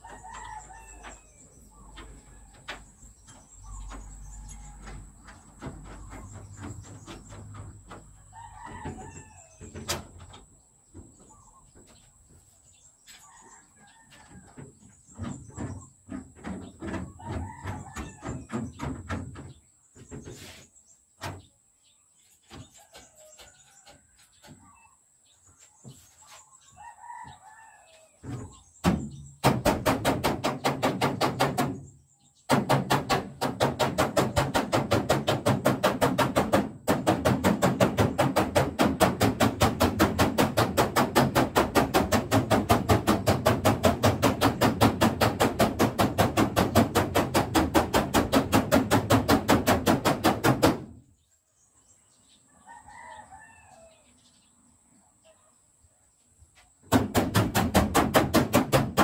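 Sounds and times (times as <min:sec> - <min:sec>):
rooster crowing: 0:00.0 - 0:01.4, 0:08.3 - 0:09.6, 0:26.8 - 0:28.1, 0:52.6 - 0:54.1.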